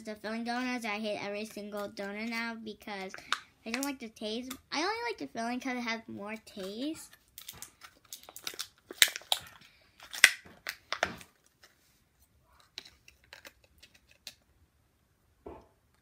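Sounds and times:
plastic wrapping crinkling and tearing: 6.6 - 11.6.

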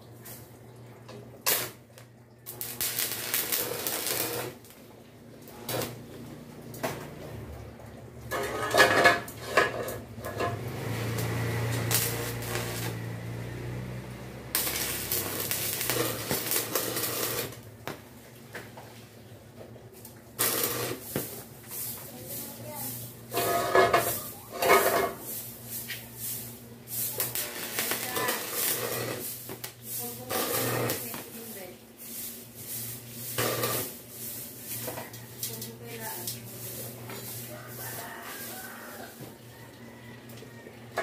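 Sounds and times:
welding arc crackling: 1.4 - 6.9, 10.2 - 18.0, 20.3 - 39.2.

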